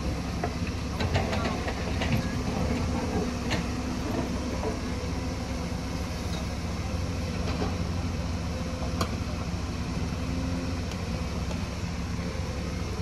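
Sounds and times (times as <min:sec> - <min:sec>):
excavator diesel engines running: 0:00.0 - 0:13.0.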